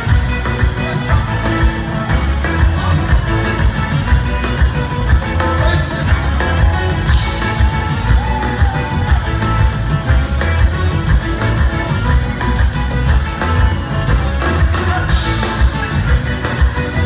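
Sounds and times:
pop band playing: 0.0 - 17.0
person singing: 5.1 - 9.8, 14.0 - 17.0.

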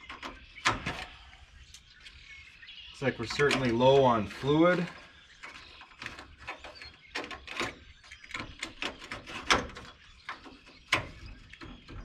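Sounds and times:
clicks and clunks of engine parts: 0.0 - 2.2, 4.8 - 12.0.

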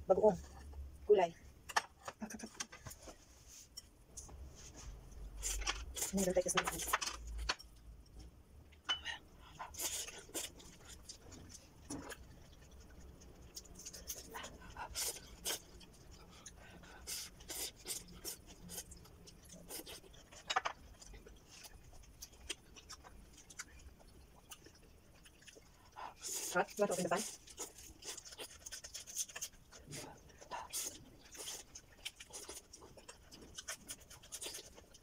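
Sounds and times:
crunchy chewing of vegetables: 9.4 - 35.0.

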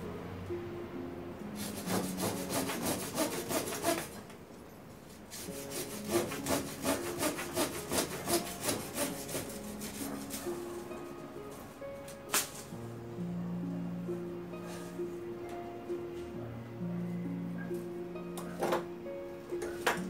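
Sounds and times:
pruning saw cutting branch: 1.6 - 4.2, 5.3 - 10.5.

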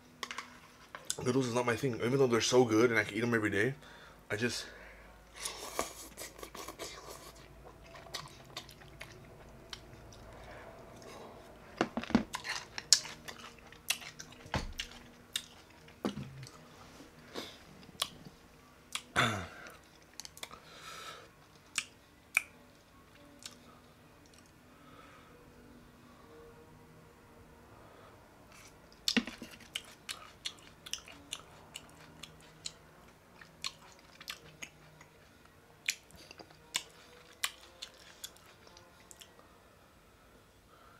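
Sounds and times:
wet chewing and mouth smacks: 7.6 - 10.4, 12.3 - 16.6, 28.5 - 35.2, 35.8 - 39.3.

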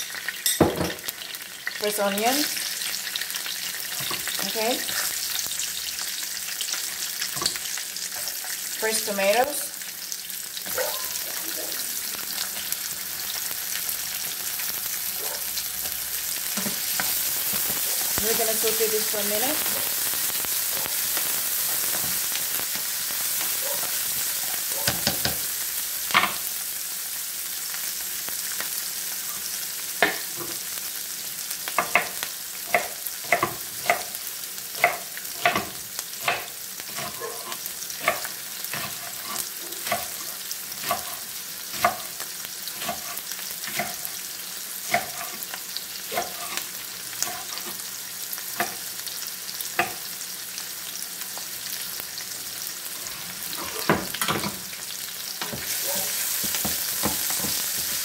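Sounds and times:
vegetables sizzling in oil: 0.0 - 58.0
spatula stirring in a pan: 3.4 - 5.6, 31.7 - 47.9, 55.4 - 58.0.

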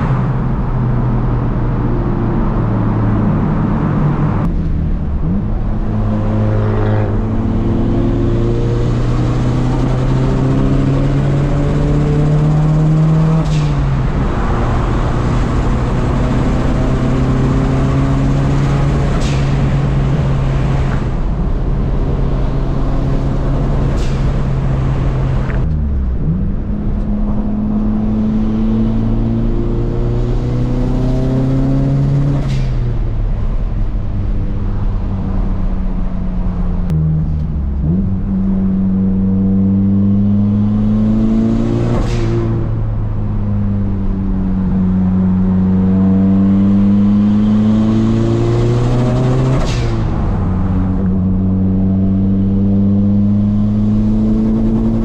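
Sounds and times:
road noise: 0.0 - 55.0
car engine through gear changes: 36.2 - 55.0.

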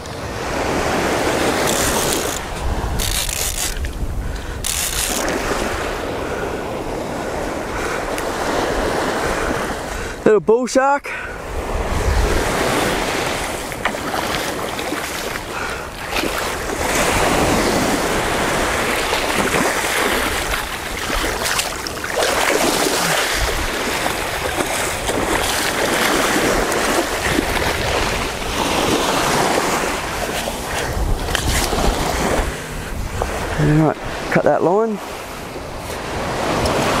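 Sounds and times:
wind rumbling on microphone: 0.0 - 10.3, 11.4 - 37.0
surf washing onto beach: 0.0 - 37.0
fish thrashing in water: 18.4 - 29.9.

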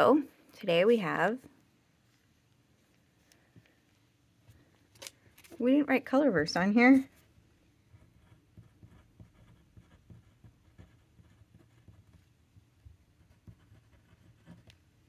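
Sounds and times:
pen scratching on paper: 7.9 - 14.9.

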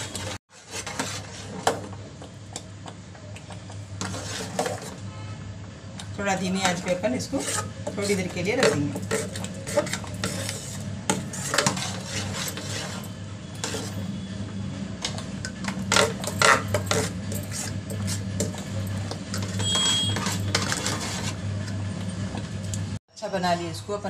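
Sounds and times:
metal spoon scraping a pot: 0.0 - 1.7, 4.0 - 5.0, 6.4 - 14.2, 15.7 - 21.4.

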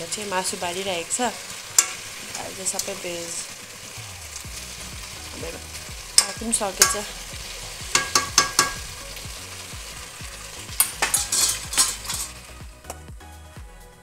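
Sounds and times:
curry sizzling in a wok: 0.0 - 14.0
metal spoon scraping a pan: 1.5 - 3.5, 5.4 - 9.0, 10.7 - 12.4.

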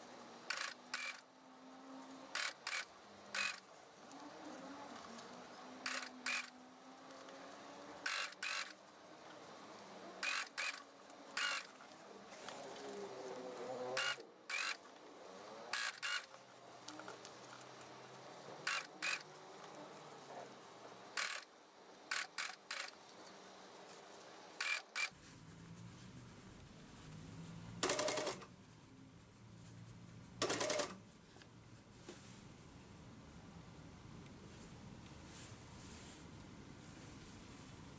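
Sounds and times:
sewing machine stitching: 0.5 - 1.2, 2.3 - 3.6, 5.8 - 7.2, 7.8 - 8.8, 10.2 - 11.8, 13.8 - 14.8, 15.6 - 16.4, 18.6 - 19.3, 21.2 - 21.5, 27.7 - 28.5, 30.4 - 31.0.

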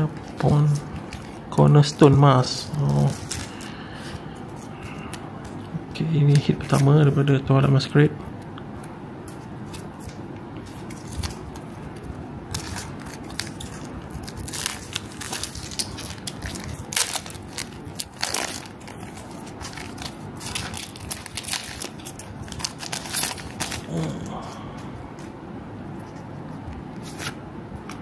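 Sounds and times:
foil wrapper crinkling: 12.5 - 24.0.

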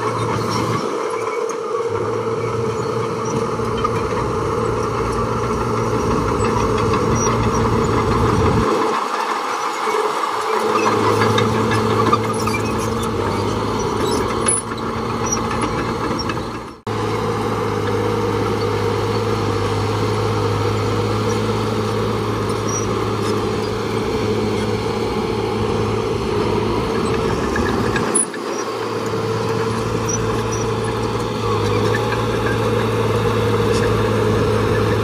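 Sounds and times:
heavy diesel engine running: 0.0 - 35.0.

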